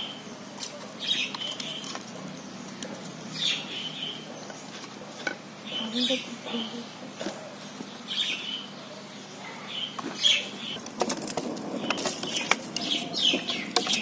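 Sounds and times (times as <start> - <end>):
wood fire crackling and popping: 0.0 - 3.4, 10.7 - 14.0
birds chirping: 0.0 - 14.0.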